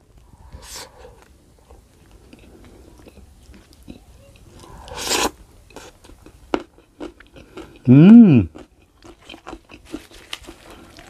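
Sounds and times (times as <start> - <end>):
wet mouth eating sound: 2.3 - 11.0.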